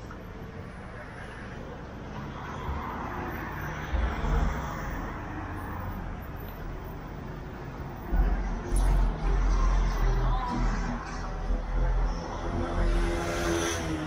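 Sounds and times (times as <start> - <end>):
city traffic: 0.0 - 14.0
car passing: 7.1 - 14.0.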